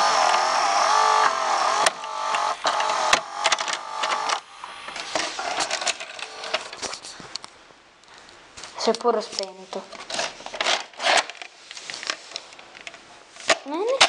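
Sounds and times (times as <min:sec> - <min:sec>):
motor whirring whine: 0:00.0 - 0:06.8
gears clattering: 0:00.0 - 0:06.9.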